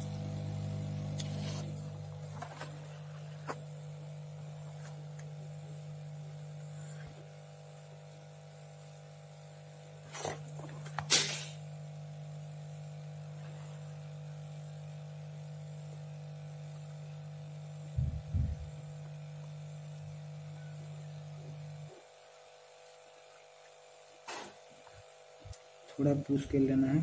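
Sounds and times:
hot air station humming: 0.0 - 7.4.

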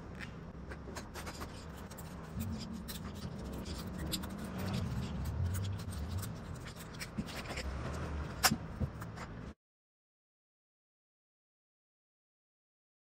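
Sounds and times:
steady low hum: 0.0 - 9.6
vegetable peeler scraping squash: 0.9 - 9.4.

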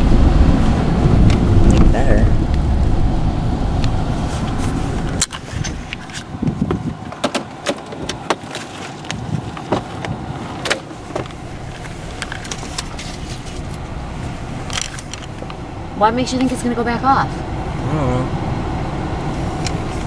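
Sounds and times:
low car rumble: 0.0 - 20.0.

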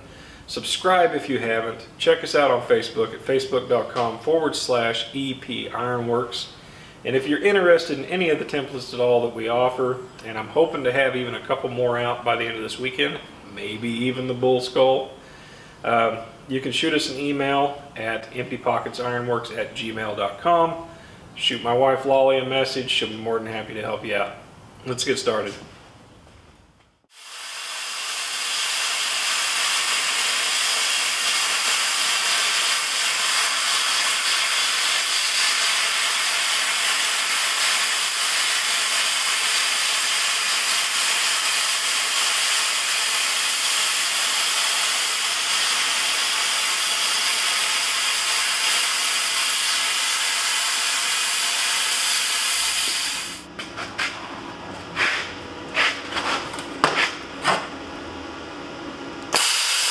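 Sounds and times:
plasma cutter hissing: 27.1 - 53.5, 59.3 - 59.9.

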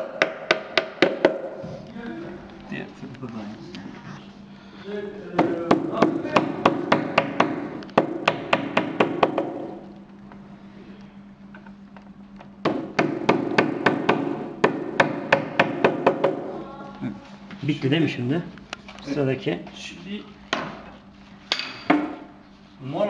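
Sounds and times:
hammer tapping pins: 0.0 - 1.6.

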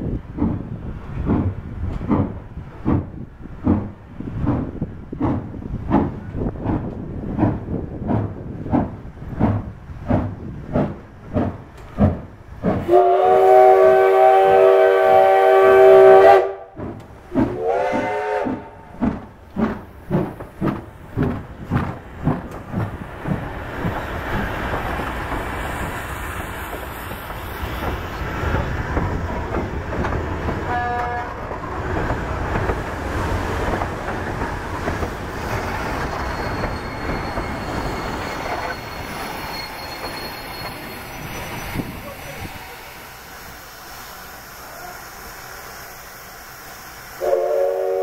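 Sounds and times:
train rolling past: 0.0 - 48.0
steam locomotive chime whistle: 12.8 - 16.7, 17.6 - 18.6, 36.2 - 42.5, 47.2 - 48.0.

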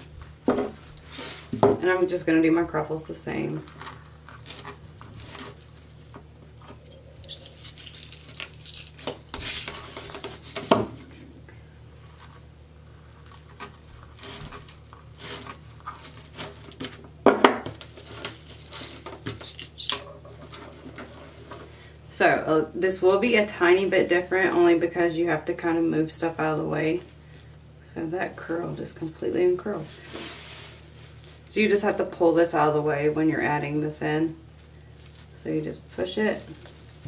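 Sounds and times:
steady low hum: 0.0 - 37.0
plastic mesh rustling: 3.4 - 11.3, 12.0 - 17.0, 29.8 - 37.0.

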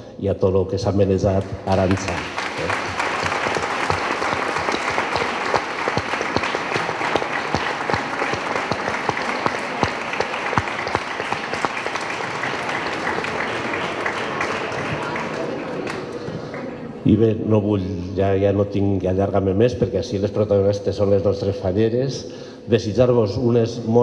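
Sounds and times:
audience applauding: 1.7 - 16.9.

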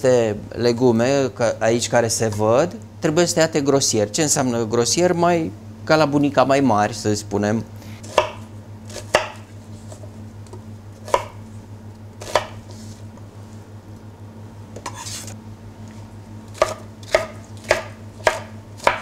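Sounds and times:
steady low hum: 0.0 - 19.0
knife chopping on plastic board: 8.0 - 9.5, 11.0 - 11.4, 12.2 - 12.7, 16.5 - 19.0.

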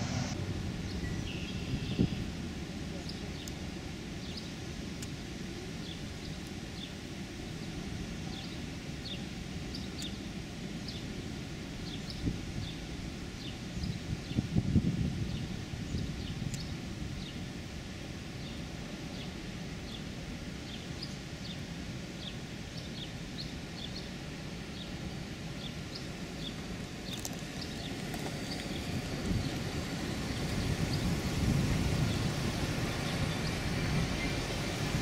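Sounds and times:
car road and engine rumble: 0.0 - 4.2.

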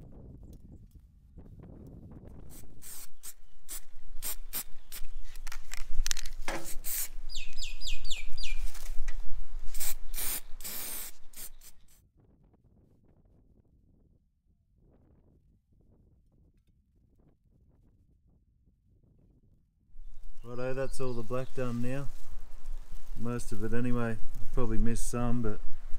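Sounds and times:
spray paint can hissing: 2.4 - 5.2, 6.6 - 7.2, 9.6 - 12.0.

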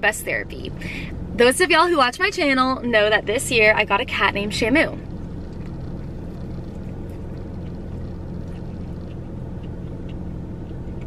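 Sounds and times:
car engine idling: 0.0 - 11.0
chewing clicks: 5.0 - 11.0.

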